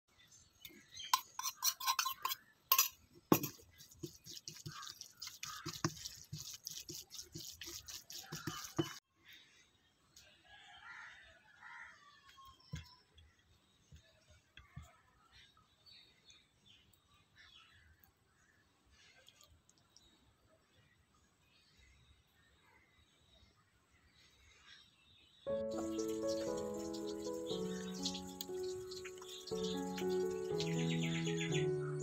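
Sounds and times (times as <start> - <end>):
faint outdoor background: 0.0 - 32.0
metal spoon scraping steel bowl: 1.0 - 9.0
spatula scraping and stirring in pan: 1.1 - 9.0
bird chirps: 24.6 - 32.0.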